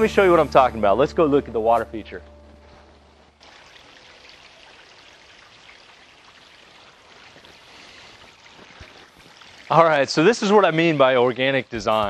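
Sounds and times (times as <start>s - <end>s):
waterfall trickling into pond: 2.8s - 12.0s.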